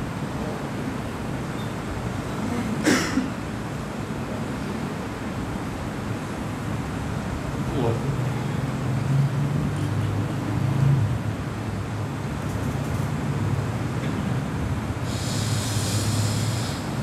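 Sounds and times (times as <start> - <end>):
hiss: 15.0 - 17.0.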